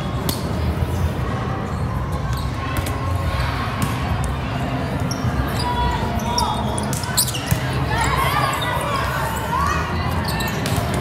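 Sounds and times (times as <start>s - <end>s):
volleyballs hit and bouncing: 0.1s - 0.8s, 2.2s - 5.4s, 6.6s - 7.9s, 10.5s - 11.0s.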